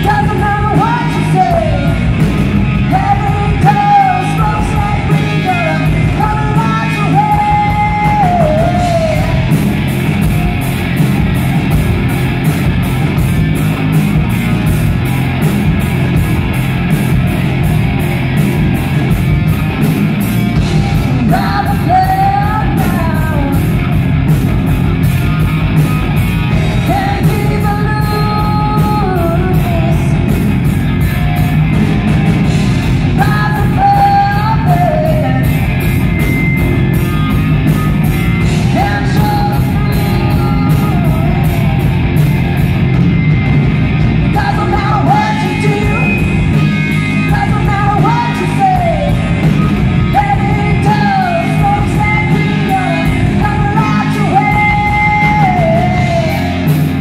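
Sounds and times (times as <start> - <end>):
woman singing: 0.0 - 9.6, 21.0 - 23.9, 26.8 - 30.4, 33.1 - 35.9, 38.4 - 41.8, 44.3 - 56.9
bass guitar: 0.0 - 57.0
drum kit with cymbal beat: 0.0 - 57.0
electric guitar: 0.0 - 57.0.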